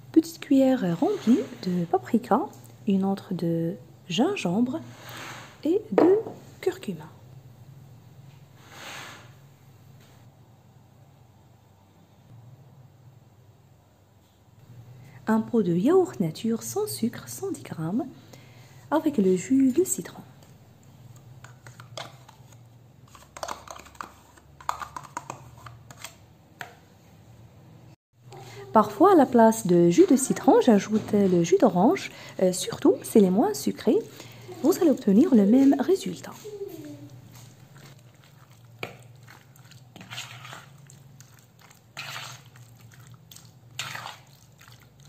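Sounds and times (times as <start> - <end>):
wet squelching of stirring: 16.4 - 26.8, 28.2 - 45.0
spoon scraping plastic pot: 21.1 - 26.2, 37.3 - 44.4.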